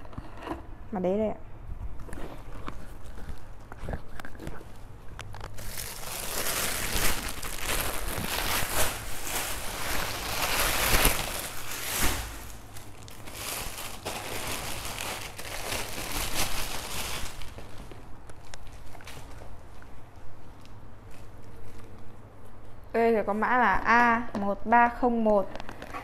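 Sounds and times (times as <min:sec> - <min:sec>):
plastic bags crinkling: 0:04.8 - 0:19.9.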